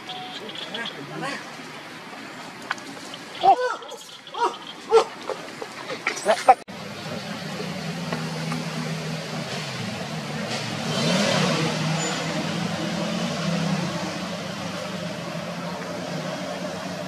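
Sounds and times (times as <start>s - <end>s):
vehicle engine passing: 6.7s - 17.0s.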